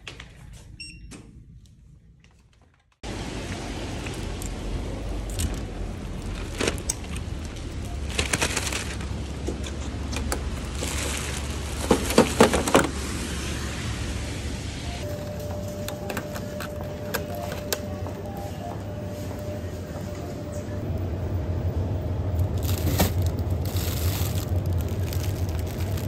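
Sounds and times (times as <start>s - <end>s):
indoor hum: 0.0s - 26.0s
rain street rumble and hiss: 3.0s - 15.6s, 20.8s - 26.0s
knocks and rustles: 8.1s - 12.9s.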